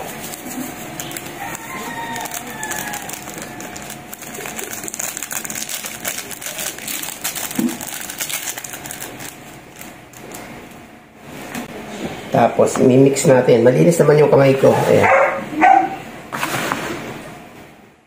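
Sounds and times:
plastic sachet crinkling: 0:00.0 - 0:10.8.

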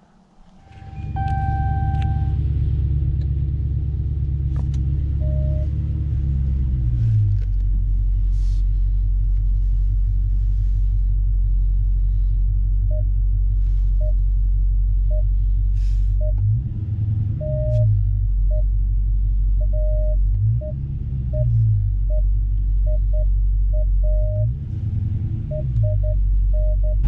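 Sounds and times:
car engine idling: 0:00.0 - 0:27.0
short electronic beeps: 0:00.6 - 0:02.4, 0:05.2 - 0:05.7, 0:17.4 - 0:18.7, 0:25.5 - 0:27.0.

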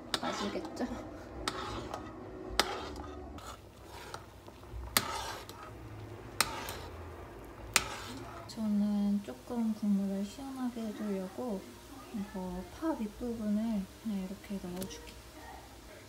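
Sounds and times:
spoon stirring in a pot: 0:00.0 - 0:11.4.

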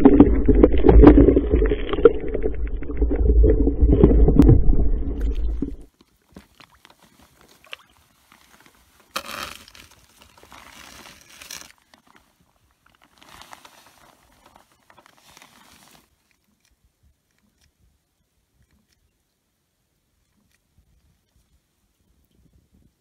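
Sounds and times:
noise bursts: 0:00.0 - 0:05.9
underwater rumble with gurgles: 0:00.0 - 0:05.9.

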